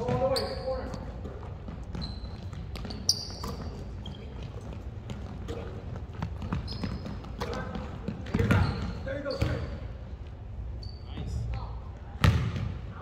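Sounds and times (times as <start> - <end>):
basketball bouncing on wooden floor: 0.0 - 0.4, 1.2 - 9.7, 12.2 - 12.7
sneakers squeaking on wooden court: 0.0 - 10.1, 10.7 - 12.8.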